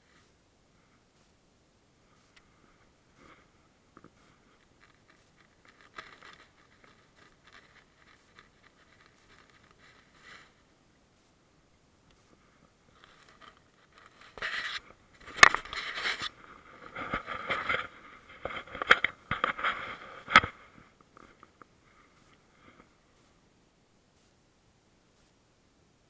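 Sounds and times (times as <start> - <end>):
scraping and rustling handling noise: 2.0 - 11.5, 12.1 - 23.5.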